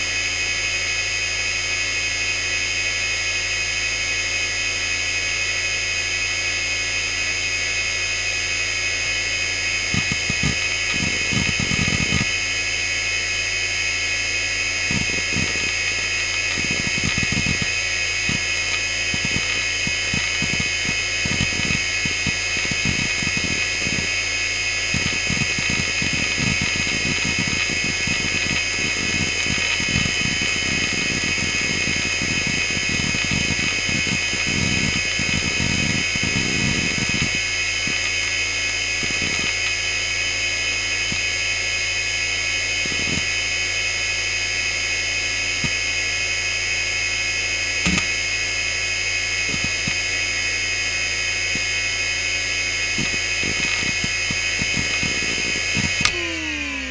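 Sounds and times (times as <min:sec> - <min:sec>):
hard drive whine: 0:00.0 - 0:56.9
hard drive seek clicks: 0:09.9 - 0:12.4, 0:14.8 - 0:24.2, 0:24.8 - 0:39.8, 0:42.7 - 0:43.4, 0:47.8 - 0:48.2, 0:49.4 - 0:50.2, 0:52.8 - 0:56.9.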